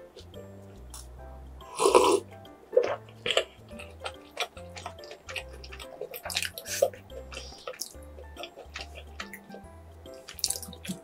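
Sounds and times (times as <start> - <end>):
background music with bass line: 0.0 - 11.0
crusty bread crackling: 2.9 - 11.0.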